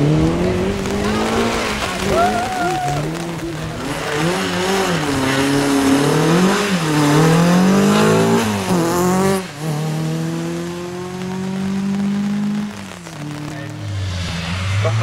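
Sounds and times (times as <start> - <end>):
rally car engine revving: 0.0 - 15.0
tyres hissing on wet road: 0.0 - 15.0.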